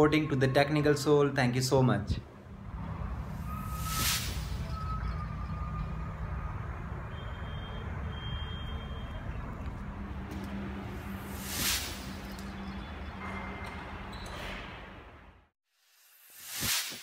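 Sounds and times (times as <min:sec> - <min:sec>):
faint high steady tones: 0:02.5 - 0:09.8
brief whoosh: 0:02.8 - 0:05.1, 0:11.1 - 0:12.3.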